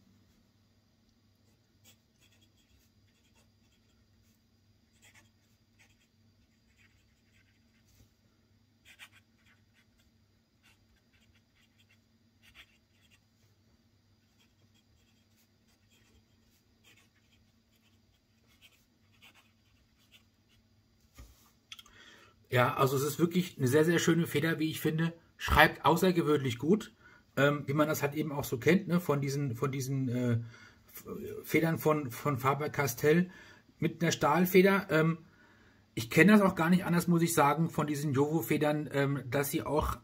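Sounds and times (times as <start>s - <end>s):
pen scratching on paper: 1.4s - 8.0s, 8.8s - 13.2s, 14.2s - 20.6s.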